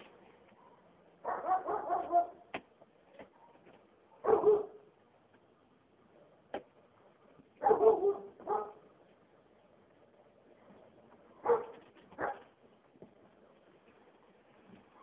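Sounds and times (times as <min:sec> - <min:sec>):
dog barking: 0:00.5 - 0:02.5, 0:03.3 - 0:04.9, 0:07.6 - 0:08.8, 0:11.4 - 0:12.5.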